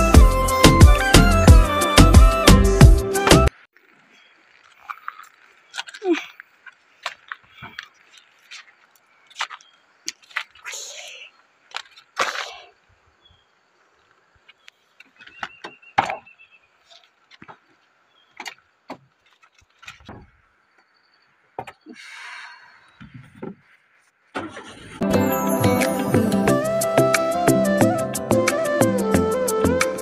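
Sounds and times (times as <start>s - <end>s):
background music: 0.0s - 3.5s, 25.0s - 30.0s.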